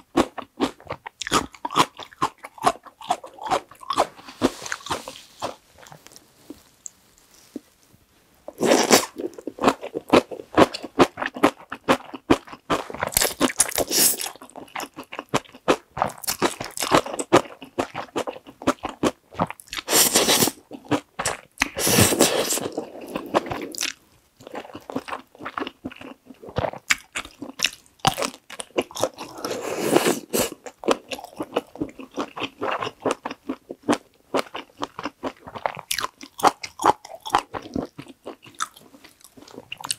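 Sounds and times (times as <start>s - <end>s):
wet chewing: 8.5s - 39.9s
slurping noodles: 19.8s - 20.6s, 21.8s - 23.8s, 29.0s - 30.6s.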